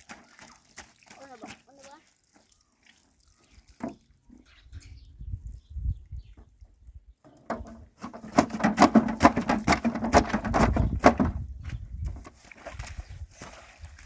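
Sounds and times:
bare feet on soaked blanket: 0:00.0 - 0:04.3, 0:07.9 - 0:14.0.

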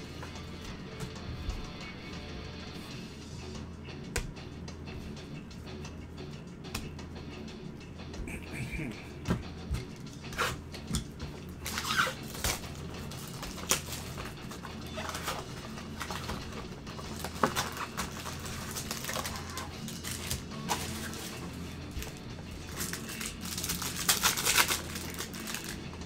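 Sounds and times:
foil wrappers rustling and crinkling: 0:11.6 - 0:26.0.

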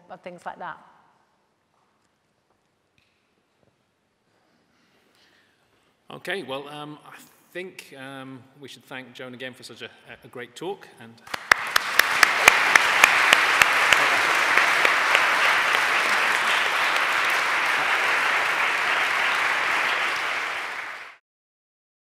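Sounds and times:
sharp single claps: 0:11.3 - 0:21.1
audience applauding: 0:11.3 - 0:21.2.

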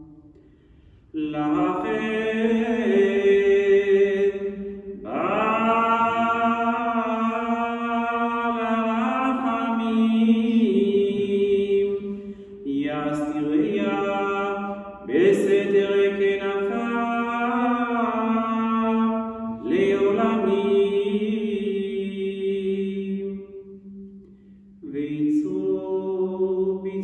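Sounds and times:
singer breathing: 0:00.3 - 0:01.2, 0:12.1 - 0:12.6, 0:24.2 - 0:24.8
man chanting through a microphone: 0:12.6 - 0:23.1.

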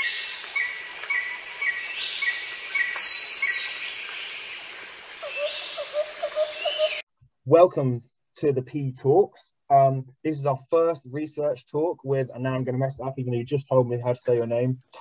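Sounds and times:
insects chirring: 0:00.0 - 0:07.0
birds calling: 0:00.0 - 0:07.1.

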